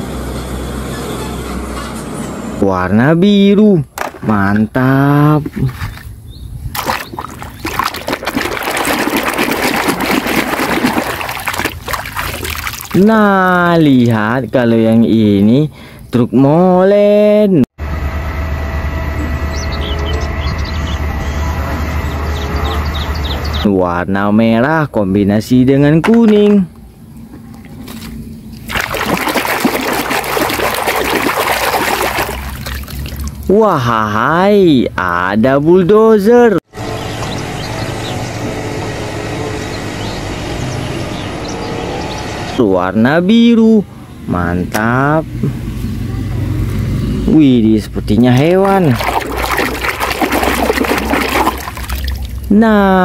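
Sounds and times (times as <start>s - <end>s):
water sloshing and splashing in basin: 4.0s - 15.0s, 27.3s - 33.5s, 48.1s - 52.6s.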